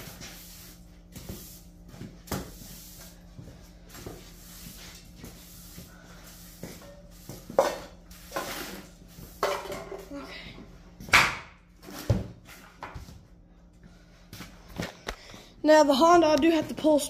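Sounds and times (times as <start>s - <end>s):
objects knocking and clattering: 6.8s - 10.1s.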